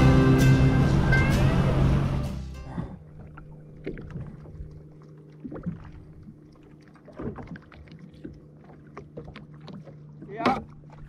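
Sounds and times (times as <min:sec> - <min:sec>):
low hum: 0:00.0 - 0:11.0
water lapping against hull: 0:02.6 - 0:11.0.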